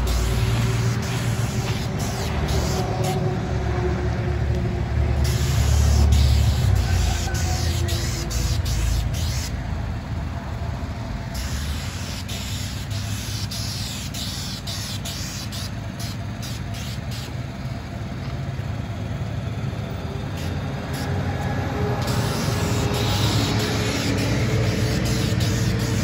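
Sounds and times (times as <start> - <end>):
spray wand hissing: 0.0 - 3.2, 5.2 - 9.6, 11.3 - 17.4, 20.3 - 26.0
pump engine running: 0.0 - 26.0.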